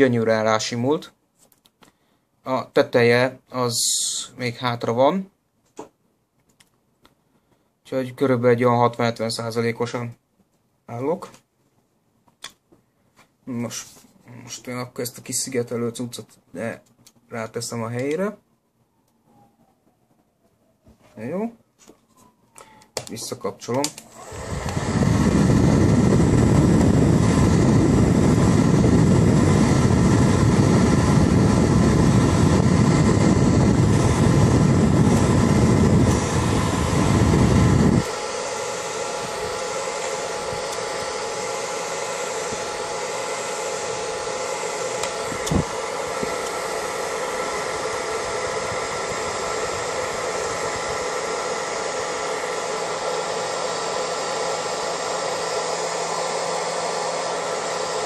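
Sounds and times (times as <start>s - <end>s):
hair dryer motor whine and hiss: 23.0s - 58.0s.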